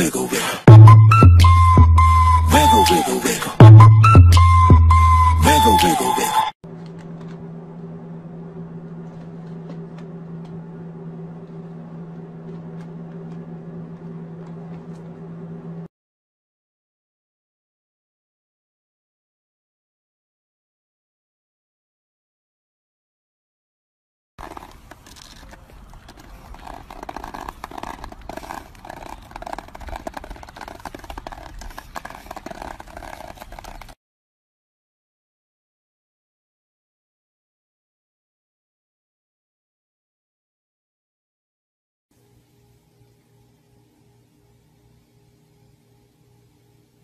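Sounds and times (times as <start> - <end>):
low hum: 6.6 - 15.9
low outdoor rumble: 6.7 - 15.9
plastic handle scraping on asphalt: 24.4 - 34.0.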